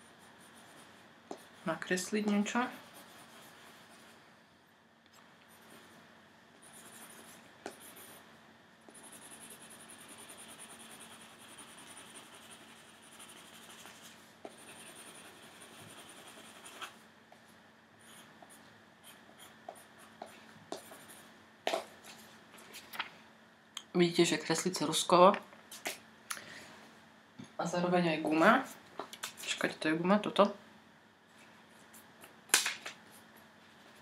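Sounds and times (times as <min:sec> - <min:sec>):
pencil scratching on paper: 0:00.0 - 0:01.9, 0:02.6 - 0:04.2, 0:06.6 - 0:08.2, 0:08.9 - 0:17.0.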